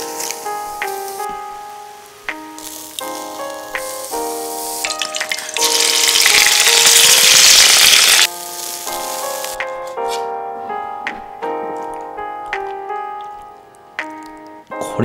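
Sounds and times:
piano music: 0.0s - 15.0s
food sizzling in a hot wok: 2.6s - 9.6s.

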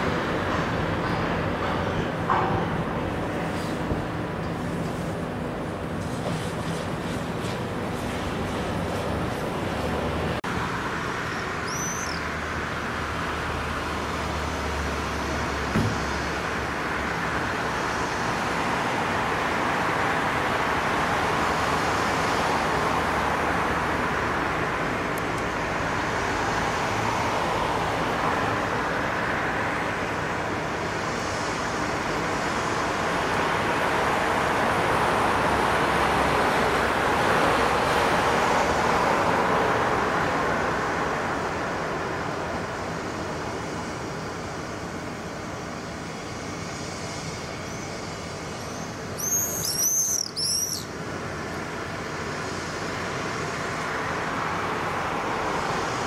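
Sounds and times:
passing road traffic: 0.0s - 56.0s.

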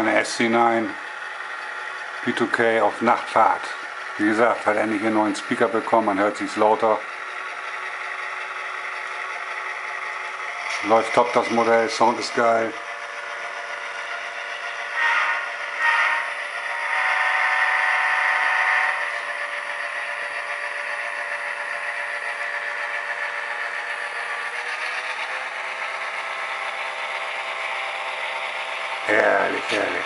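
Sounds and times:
diesel engine sound from speaker: 0.0s - 30.0s.

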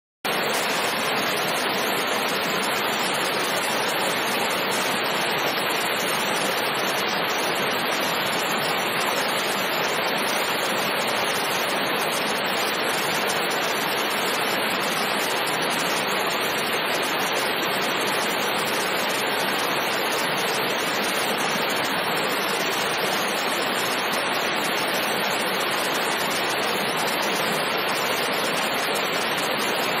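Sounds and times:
waterfall rushing: 0.3s - 30.0s.

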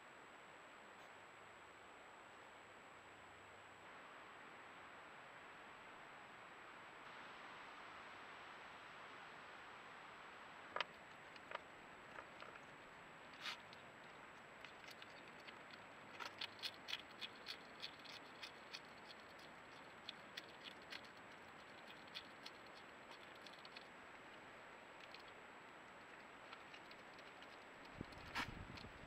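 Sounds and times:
hedgehog crunching dry food: 10.7s - 29.0s.

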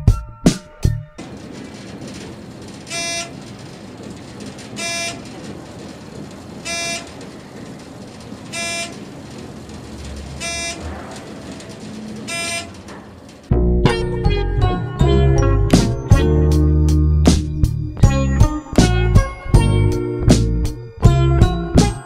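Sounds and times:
low rumble: 0.0s - 21.7s
steady background hum: 0.6s - 14.3s.

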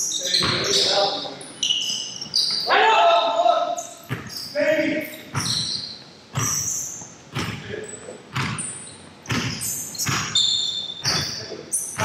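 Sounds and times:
shoe squeaks: 0.0s - 12.0s
ball striking hard surfaces: 7.3s - 7.7s, 9.3s - 10.3s.

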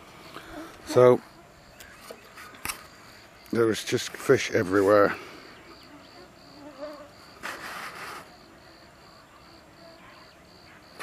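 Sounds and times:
crickets chirping: 0.0s - 11.0s
mosquito whine: 5.7s - 7.4s.

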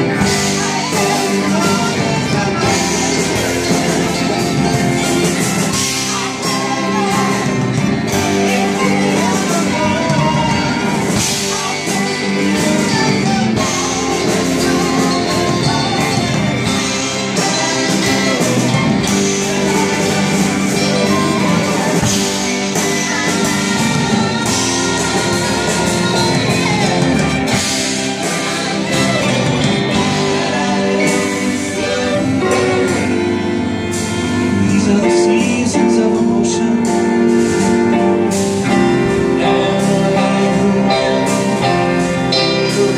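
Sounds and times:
acoustic band playing: 0.0s - 42.9s
woman singing into a microphone: 5.8s - 33.1s.

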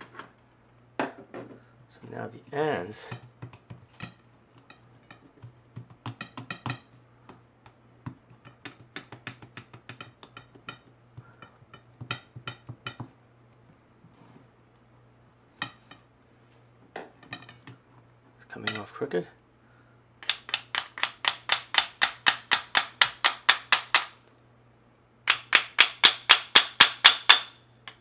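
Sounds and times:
fuse knocking on ceramic plate: 3.1s - 13.2s.

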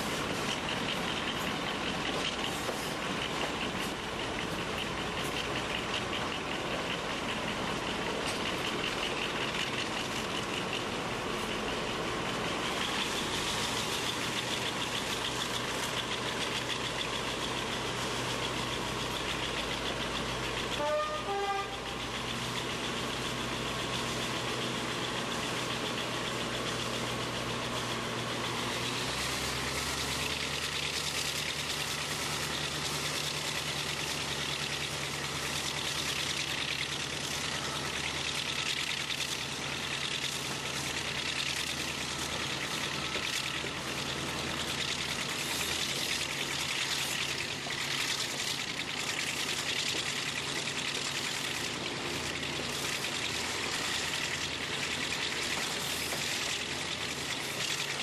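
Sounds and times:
diesel locomotive engine: 0.0s - 58.0s
wheel noise: 0.0s - 58.0s
train horn toot: 20.7s - 22.0s.

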